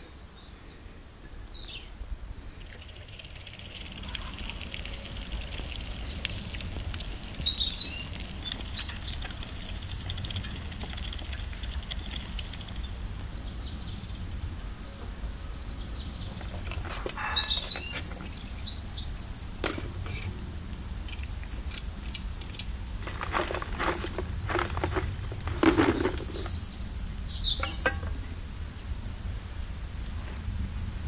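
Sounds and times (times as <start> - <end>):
small birds singing and chirping: 0.1 - 2.0, 2.9 - 20.2, 21.0 - 22.2, 23.0 - 30.4
charcoal clattering into metal stove: 22.5 - 26.7, 27.6 - 28.3.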